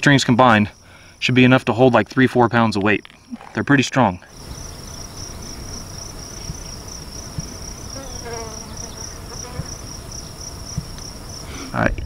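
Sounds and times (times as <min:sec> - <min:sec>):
insect trilling: 0:02.8 - 0:11.7.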